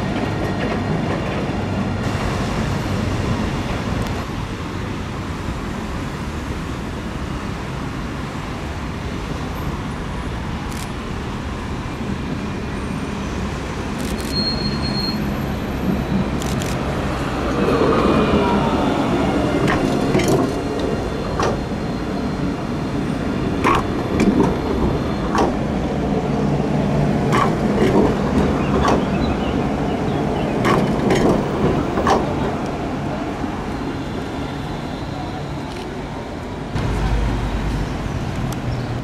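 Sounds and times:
tram rumble: 0.0s - 39.0s
wheels clicking on rails: 27.2s - 29.2s, 30.6s - 32.8s.

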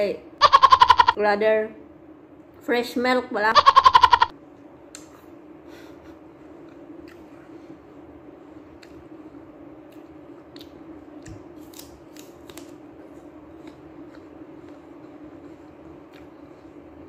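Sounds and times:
steady low hum: 0.0s - 17.0s
crunching of chewing apple: 9.9s - 17.0s.

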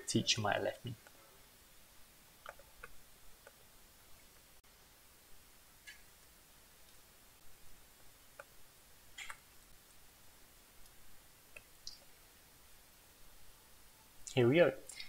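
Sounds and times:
computer mouse clicks: 2.4s - 3.6s, 9.2s - 9.4s.

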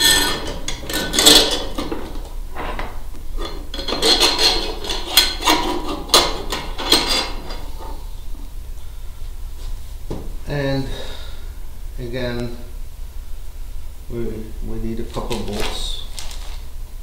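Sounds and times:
metal hardware clinking: 0.0s - 8.0s.

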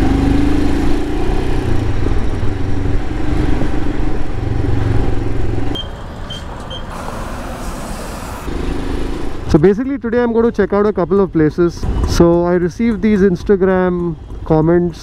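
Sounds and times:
short high beeps: 5.8s - 7.4s.

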